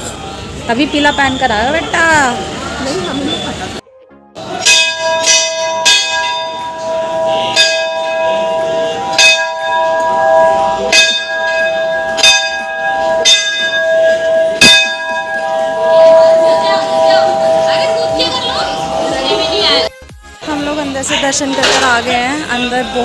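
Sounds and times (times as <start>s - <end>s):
brass bells ringing: 4.4s - 19.9s.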